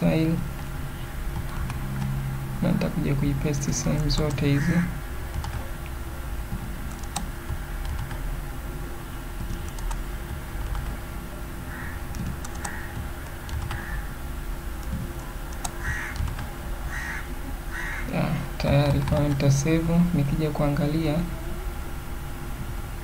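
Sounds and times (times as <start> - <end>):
keyboard keystrokes: 5.3 - 5.7, 12.1 - 13.8, 14.8 - 16.5.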